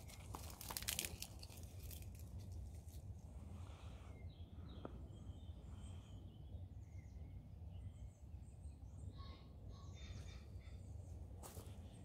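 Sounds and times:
low steady rumble: 0.0 - 12.0
wild bird chirps: 4.1 - 12.0.

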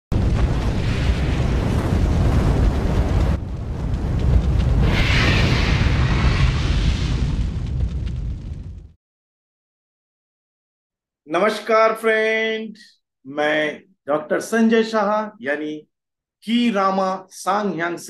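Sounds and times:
deep explosion rumbling: 0.1 - 9.0
hissing surge: 4.8 - 7.4.

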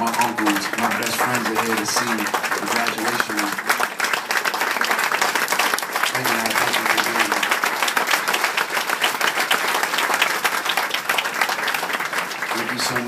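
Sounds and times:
person speaking: 0.0 - 3.6, 6.1 - 7.5
audience applauding: 0.0 - 13.0.

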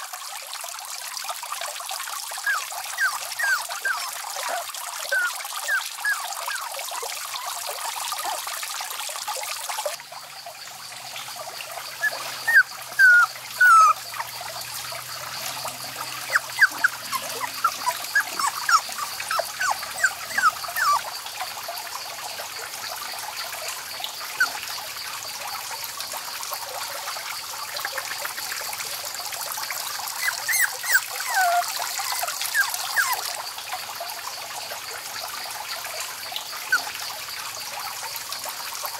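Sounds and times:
puppies whimpering: 2.4 - 6.8, 12.0 - 14.3, 15.5 - 21.1, 30.2 - 33.4.

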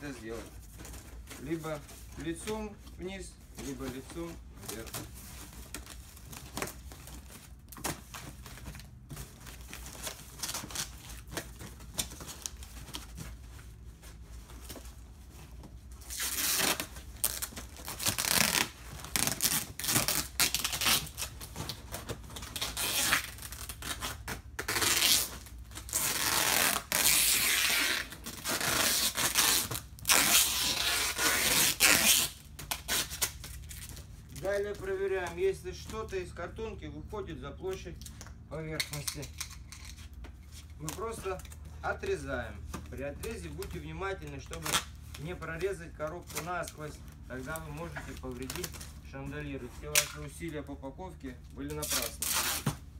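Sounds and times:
packing tape screeching off roll: 16.0 - 21.4, 22.4 - 33.9, 51.8 - 52.8.

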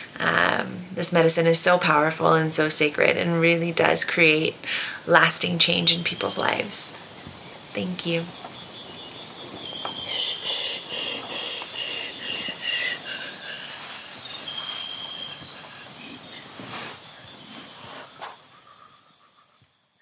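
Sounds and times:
insects chirring: 2.6 - 20.0.

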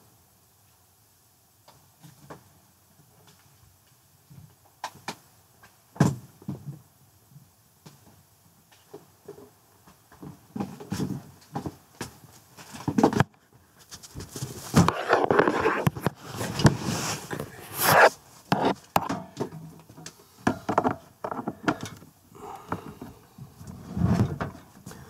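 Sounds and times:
scrapes knocks and rustles of handling: 8.8 - 22.0, 23.0 - 25.0.

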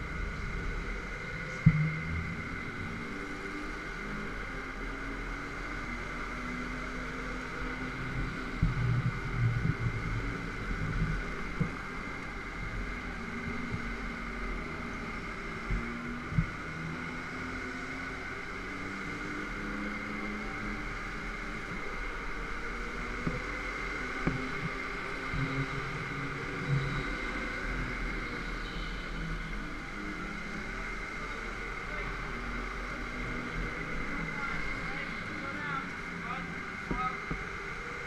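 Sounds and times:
go-kart engine whine: 0.0 - 38.0
rumbles and rattles: 8.1 - 16.8.

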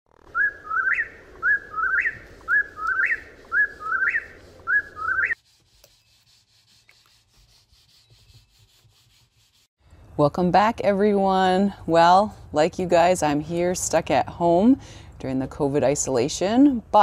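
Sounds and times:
whip-poor-will bird call: 0.4 - 5.4
faint rubbing: 1.2 - 9.7.

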